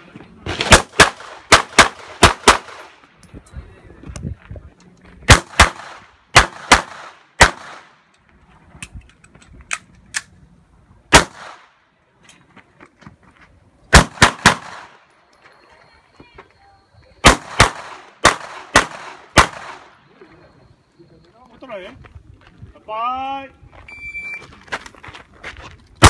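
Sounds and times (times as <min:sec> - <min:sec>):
pistol shots: 0:00.6 - 0:02.9, 0:05.3 - 0:08.0, 0:11.1 - 0:11.7, 0:13.9 - 0:15.0, 0:17.2 - 0:19.9.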